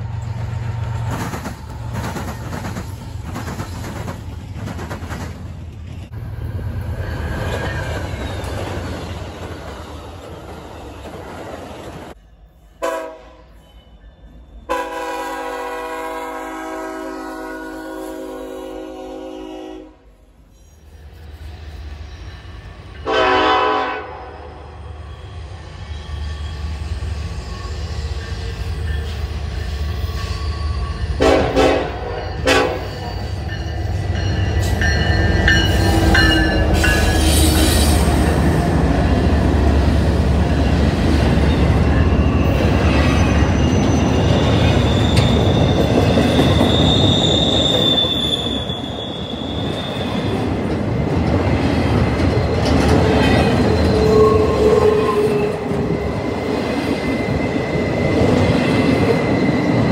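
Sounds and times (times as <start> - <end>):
freight train wheels rumbling on rail: 0.0 - 13.7, 14.3 - 59.9
locomotive horn blasts: 12.8 - 13.6, 14.7 - 20.1, 23.0 - 24.6, 31.2 - 33.1
high wheel squeal: 24.4 - 31.2, 32.1 - 38.4, 41.4 - 50.5, 53.4 - 58.2.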